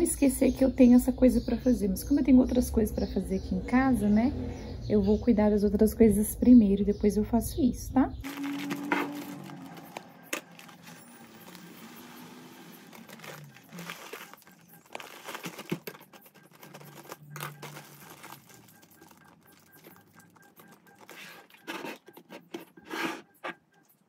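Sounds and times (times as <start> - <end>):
plastic bag crinkling: 8.2 - 22.9.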